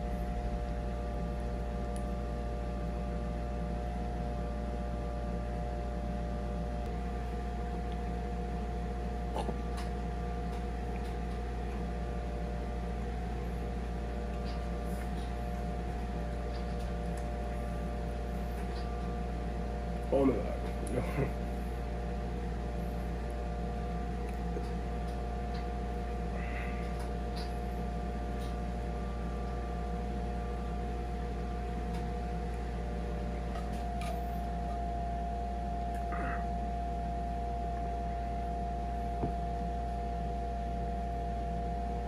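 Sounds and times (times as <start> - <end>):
appliance humming: 0.0 - 42.0.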